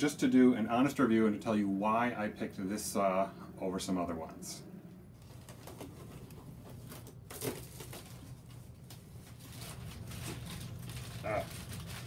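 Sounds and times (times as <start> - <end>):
low steady hum: 0.0 - 12.0
cardboard and packing material rustling: 5.2 - 12.0
tape tearing: 5.2 - 12.0.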